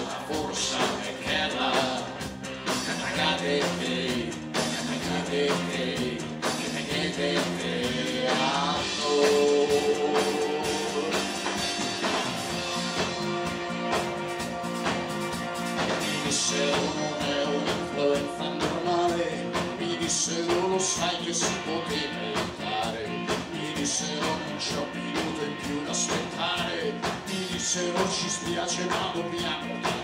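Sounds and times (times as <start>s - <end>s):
live rock band playing: 0.0s - 30.0s
steady drum beat: 0.0s - 30.0s.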